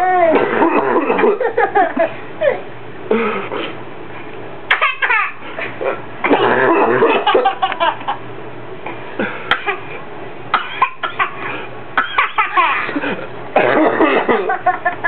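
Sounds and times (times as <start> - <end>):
toddler laughing: 4.7 - 8.2
short coughs: 10.6 - 14.5.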